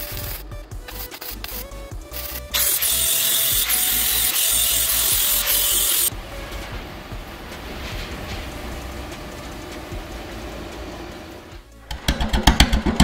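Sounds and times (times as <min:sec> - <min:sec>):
angle grinder grinding steel: 0:00.0 - 0:07.8.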